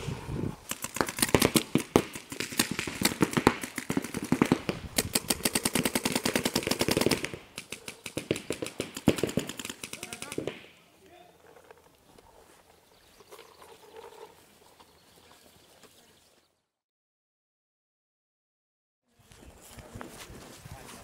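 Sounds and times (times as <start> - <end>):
paintball markers firing rapidly: 0.6 - 10.8.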